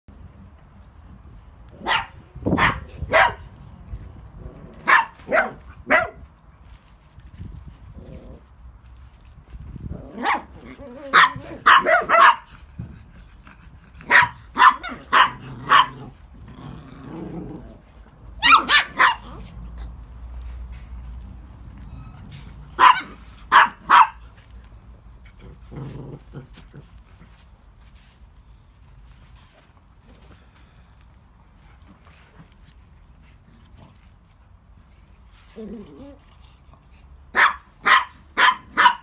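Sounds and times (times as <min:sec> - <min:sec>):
small dogs barking: 0:01.8 - 0:03.5, 0:04.8 - 0:06.2, 0:10.1 - 0:12.6, 0:14.0 - 0:16.2, 0:18.4 - 0:19.5, 0:22.7 - 0:24.3, 0:37.3 - 0:39.0.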